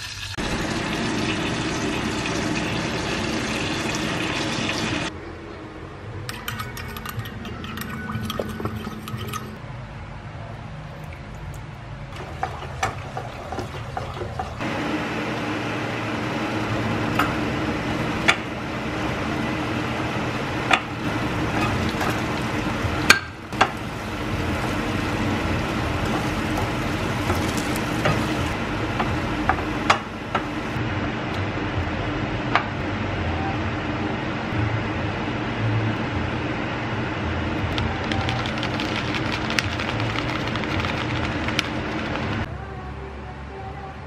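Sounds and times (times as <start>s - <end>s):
sauce sizzling in a frying pan: 0.0s - 5.1s, 21.0s - 28.6s.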